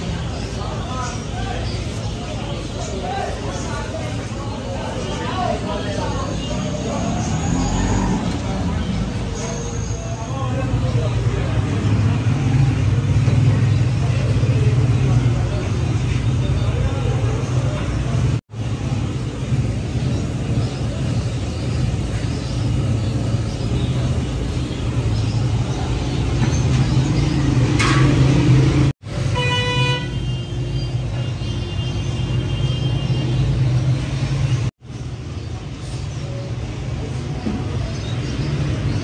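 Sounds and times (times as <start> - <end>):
traffic engines rumbling: 0.0 - 39.0
vehicle horn honking: 29.2 - 30.7.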